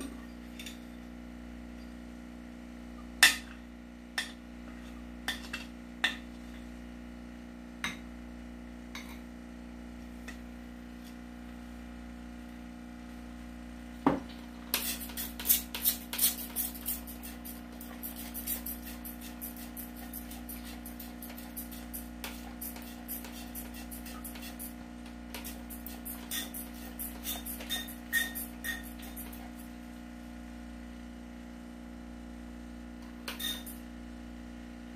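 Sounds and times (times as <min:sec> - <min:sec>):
steady low hum: 0:00.0 - 0:34.9
spray bottle squirting water: 0:14.7 - 0:29.3.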